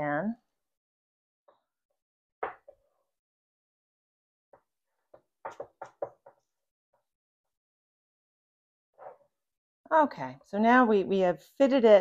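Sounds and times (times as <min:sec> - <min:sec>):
pie pan bumping on wooden board: 0:05.5 - 0:06.3.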